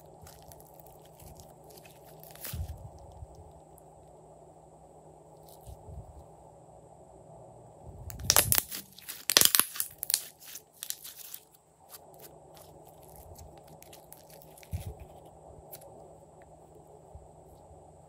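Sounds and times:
slime squishing with crackling pops: 0.0s - 3.8s, 8.1s - 15.9s.

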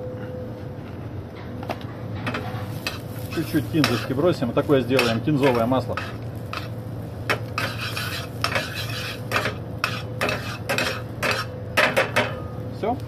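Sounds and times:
steady low hum: 0.0s - 13.0s
butter sizzling in a pan: 2.7s - 11.6s.

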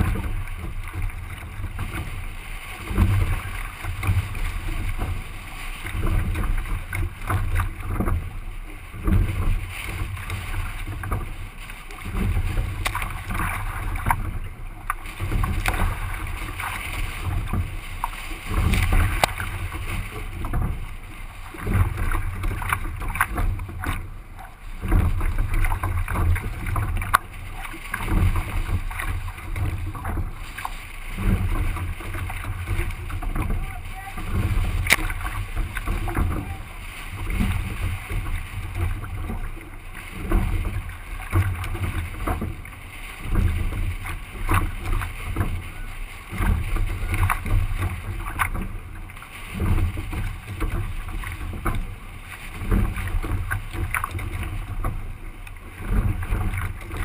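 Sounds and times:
water splashing against hull: 0.0s - 57.0s
wind buffeting microphone: 0.0s - 57.0s.

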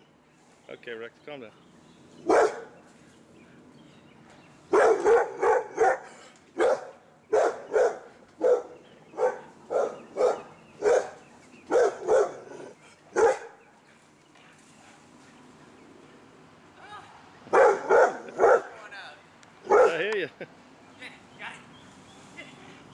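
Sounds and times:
dog barking excitedly: 2.2s - 2.7s, 4.7s - 13.6s, 17.5s - 18.8s, 19.6s - 20.1s.

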